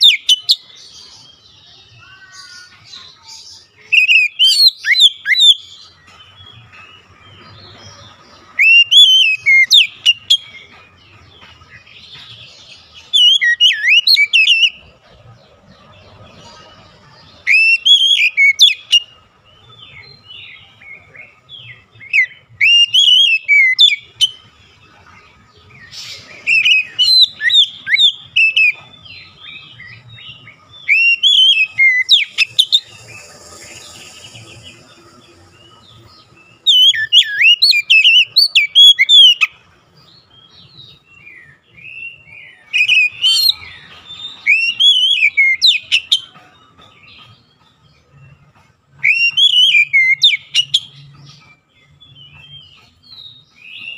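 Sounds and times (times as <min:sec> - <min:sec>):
bird whistled song: 0:00.0 - 0:02.8, 0:03.6 - 0:10.9, 0:11.7 - 0:14.9, 0:17.4 - 0:24.5, 0:25.7 - 0:53.9
soft bird twittering: 0:25.3 - 0:53.9.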